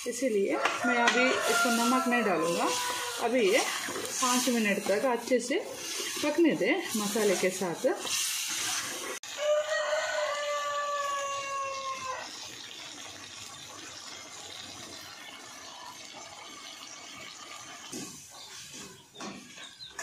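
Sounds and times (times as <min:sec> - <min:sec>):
food simmering with sizzling hiss: 0:00.0 - 0:19.6
rooster crowing: 0:00.6 - 0:03.3, 0:09.3 - 0:12.3
ladle scraping and knocking pan: 0:00.6 - 0:09.2.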